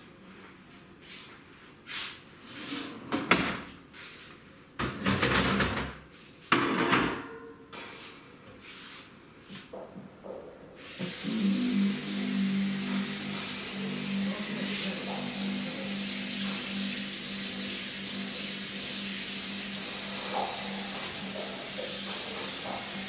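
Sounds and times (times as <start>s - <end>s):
steady hiss with low hum: 7.9s - 23.0s.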